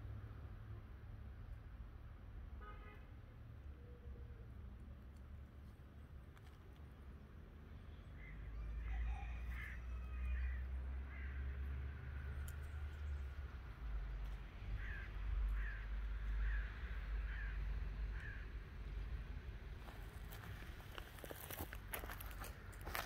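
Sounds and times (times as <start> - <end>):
crow cawing: 8.2 - 11.6, 14.8 - 18.5.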